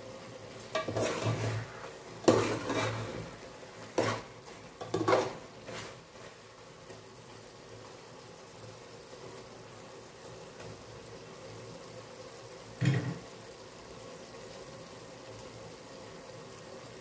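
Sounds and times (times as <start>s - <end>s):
broth simmering: 0.0s - 17.0s
metal spoon scraping pot: 0.8s - 3.2s, 4.0s - 5.9s.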